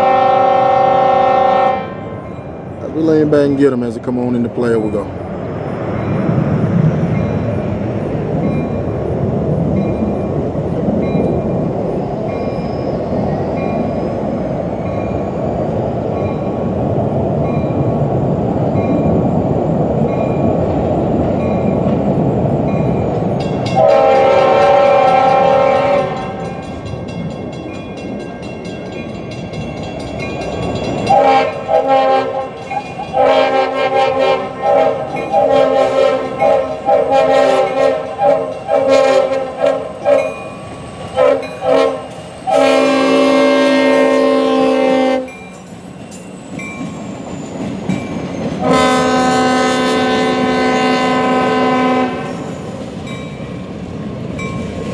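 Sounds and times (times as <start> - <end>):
locomotive horn blasts: 0.0 - 2.1, 23.7 - 26.6, 31.1 - 40.4, 41.2 - 45.4, 48.6 - 52.5
diesel locomotive engine rumbling: 0.0 - 54.9.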